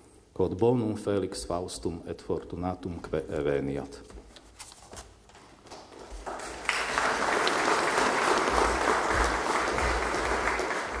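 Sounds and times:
audience applauding: 6.0 - 11.0.

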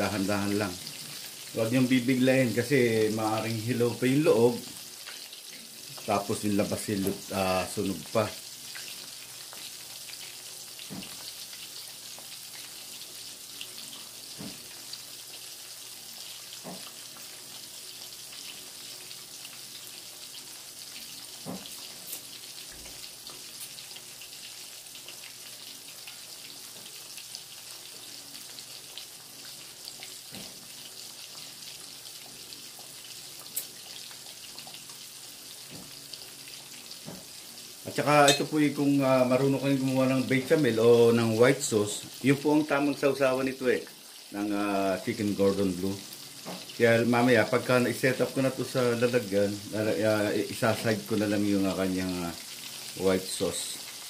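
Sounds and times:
oil sizzling: 0.0 - 54.0
small pops and crackles: 33.4 - 34.0.

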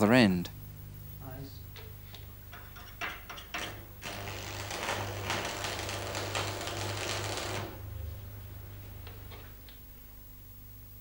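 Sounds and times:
welding arc strike clicks: 1.7 - 7.9
welding arc crackling: 3.5 - 9.8.

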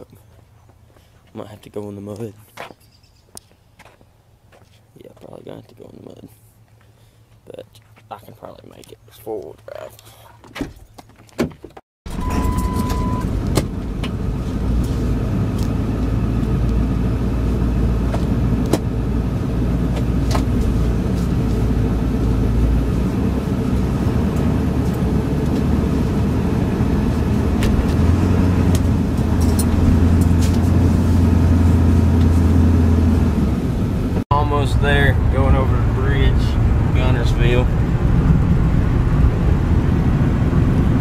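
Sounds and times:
short steady beep: 12.1 - 13.3
diesel pickup engine drone: 12.1 - 41.0.

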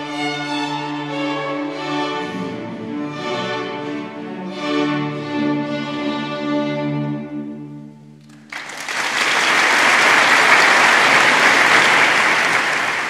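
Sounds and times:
string orchestra chord: 0.0 - 8.2
audience applause: 8.3 - 13.0.

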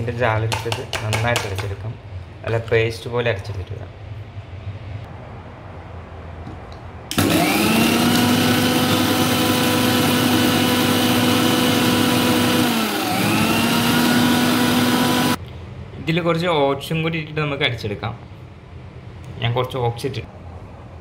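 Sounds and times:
mixer grinder motor whining: 7.1 - 15.4.

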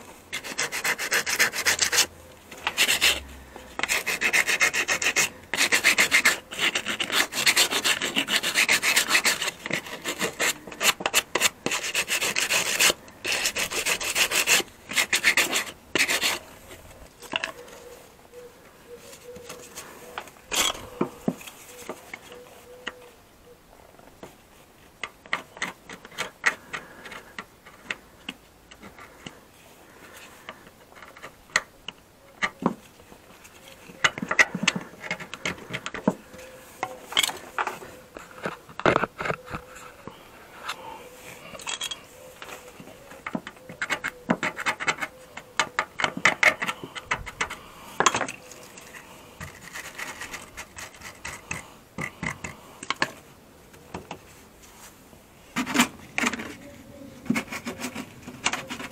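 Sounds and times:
sandpaper scraping metal: 0.3 - 16.8, 57.2 - 58.9.

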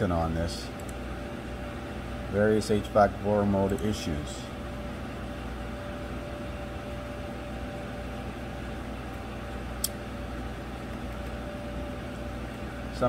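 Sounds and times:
fan hum with faint whine: 0.0 - 13.0
sharp click: 9.8 - 10.0.

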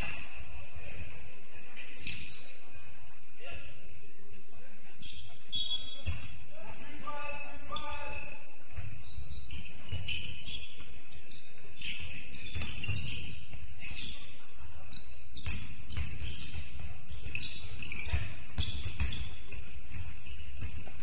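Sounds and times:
shoe squeaks: 5.0 - 6.4, 7.1 - 21.0
basketball bouncing: 8.7 - 10.5, 12.4 - 13.4, 15.4 - 21.0.

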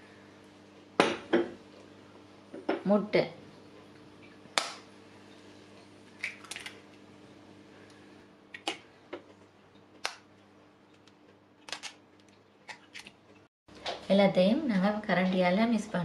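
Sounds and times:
faint steady hum: 0.0 - 16.0
eggshells cracking on bowl rim: 6.2 - 6.8.

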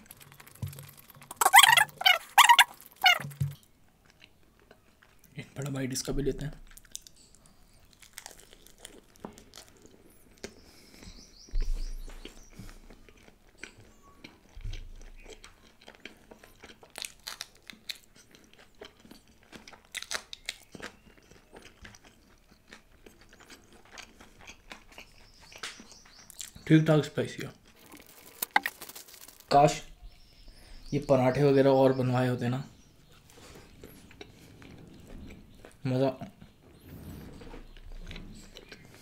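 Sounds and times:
wet crunching chewing: 0.0 - 5.4, 6.6 - 11.0, 11.6 - 26.6, 27.4 - 29.8, 33.0 - 35.8, 37.6 - 39.0.

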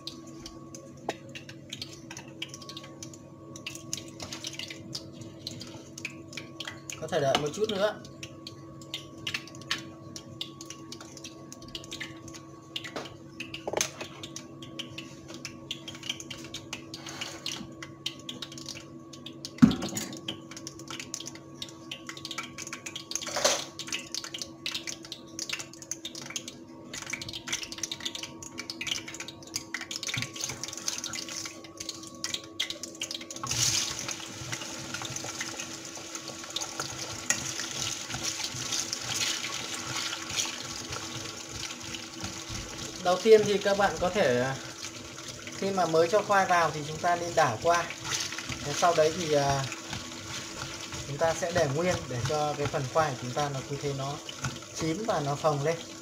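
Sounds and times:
loud deep-frying sizzle: 0.0 - 56.0
oil crackling in pan: 0.0 - 56.0.

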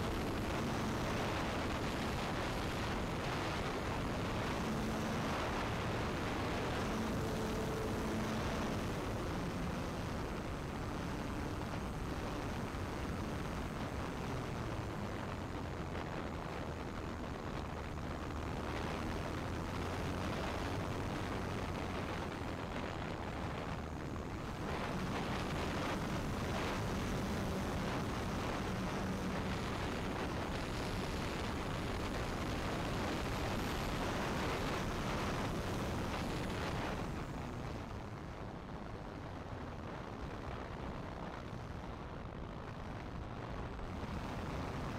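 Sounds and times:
wind rushing over microphone: 0.0 - 44.9
electric motor and propeller hum: 23.5 - 37.9.

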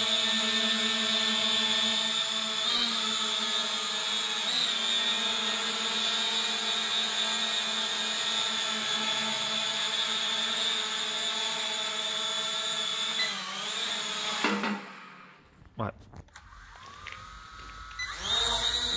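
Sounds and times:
drone propellers whining: 16.4 - 18.9.

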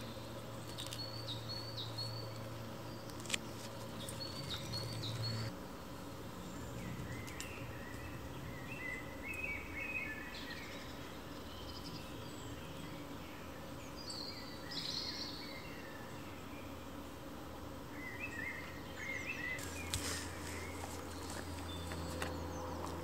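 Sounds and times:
bird calls: 4.0 - 5.5.

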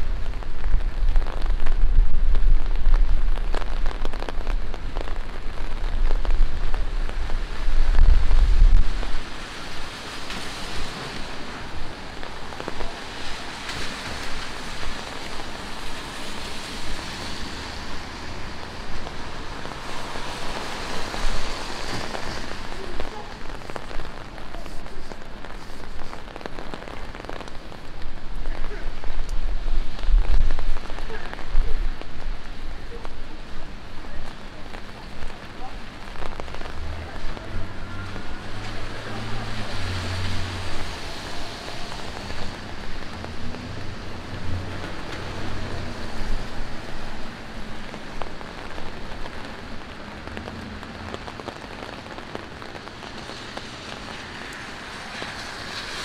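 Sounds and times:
deep low rumble: 0.0 - 9.2
rain splashing on wet street: 0.0 - 56.0.

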